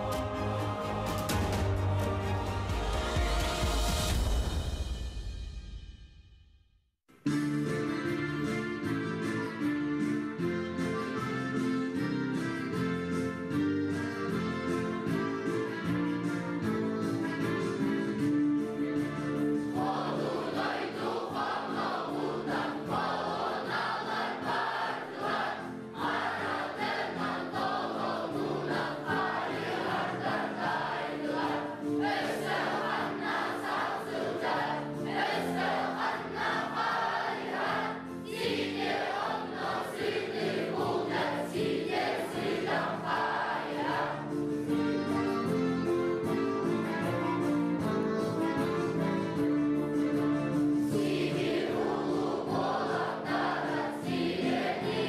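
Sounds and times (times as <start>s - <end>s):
group of voices singing: 0.0s - 4.2s, 19.6s - 44.4s, 50.8s - 55.0s
instrumental accompaniment: 7.1s - 55.0s.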